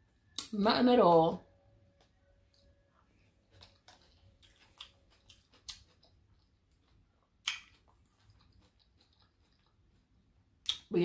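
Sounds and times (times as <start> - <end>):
mouth clicks and smacks: 7.4 - 9.7, 10.6 - 10.9.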